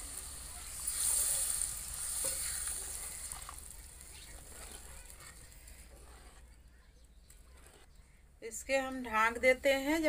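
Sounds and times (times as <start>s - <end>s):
water sizzling in hot pan: 0.0s - 5.6s
spatula scraping steel pan: 0.8s - 6.7s, 7.4s - 7.9s.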